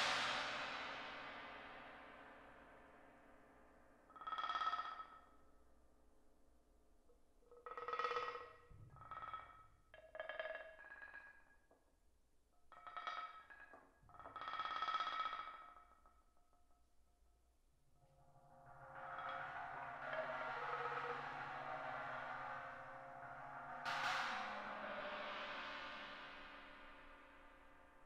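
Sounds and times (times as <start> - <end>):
metal percussion ringing: 18.1 - 28.0.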